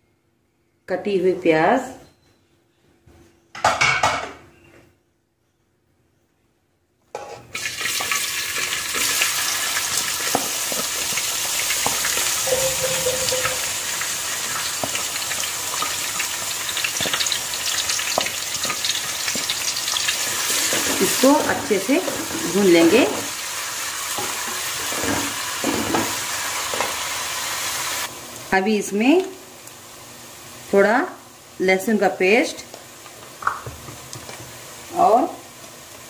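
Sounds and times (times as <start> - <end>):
onions sizzling in oil: 7.3 - 36.0.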